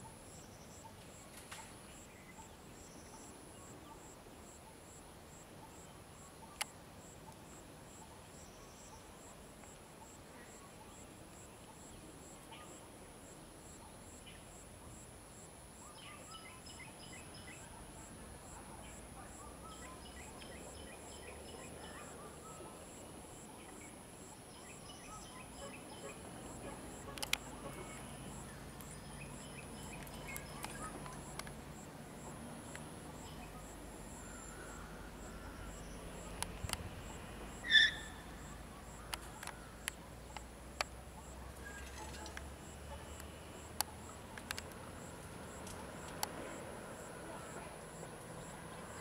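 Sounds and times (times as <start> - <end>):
insect chorus: 0.0 - 49.0
birds chirping: 23.4 - 31.8.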